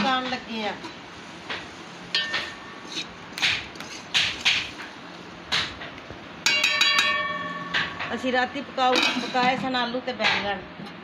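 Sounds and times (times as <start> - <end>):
metal clang ringing: 2.2 - 2.6, 6.4 - 8.3
ladle scraping in metal pot: 2.2 - 4.8.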